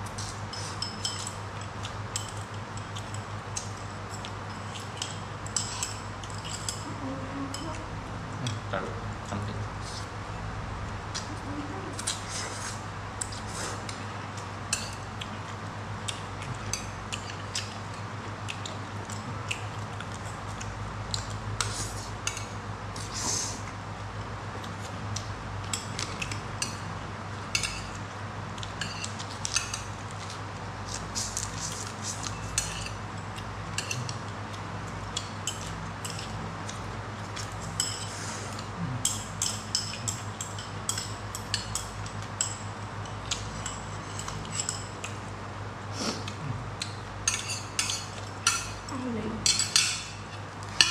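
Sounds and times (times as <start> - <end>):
chewing food: 0.0 - 6.9, 11.1 - 23.1, 24.1 - 45.3
chopsticks clicking on dishes: 33.8 - 34.2, 35.0 - 36.8, 37.4 - 45.2, 46.3 - 50.9.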